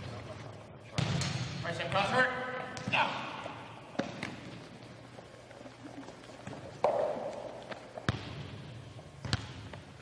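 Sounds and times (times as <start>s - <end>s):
volleyball hits echoing: 0.9s - 4.7s, 6.8s - 9.9s.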